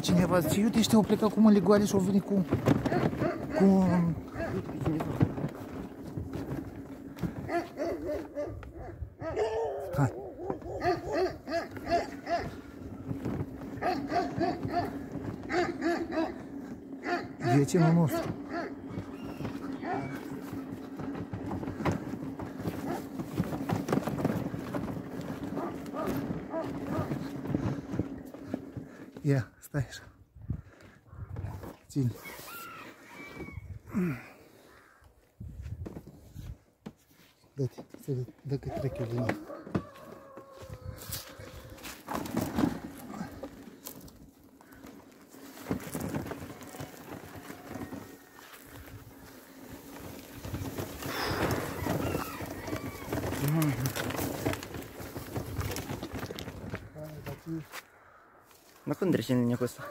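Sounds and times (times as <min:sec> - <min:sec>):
tyres crunching on dirt: 0:00.0 - 0:08.9, 0:10.0 - 0:29.6, 0:31.5 - 0:59.9
footsteps on dirt: 0:00.0 - 0:09.0, 0:10.4 - 0:29.5, 0:31.1 - 0:59.9.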